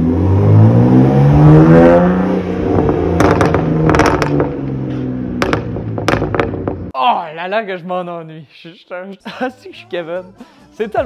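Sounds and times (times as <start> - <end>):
car engine accelerating: 0.0 - 6.9
exhaust backfires: 0.0 - 6.9.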